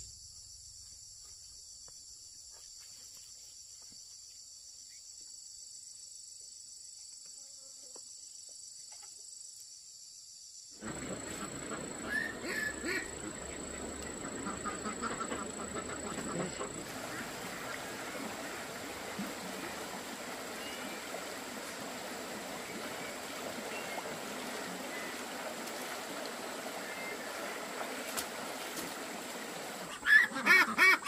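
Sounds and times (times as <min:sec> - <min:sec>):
high-pitched insect chorus: 0:00.0 - 0:19.5.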